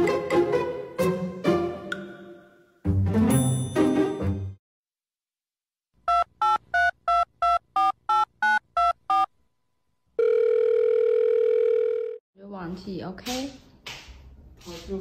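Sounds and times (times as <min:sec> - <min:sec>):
steady telephone tone: 0:10.2 - 0:12.2.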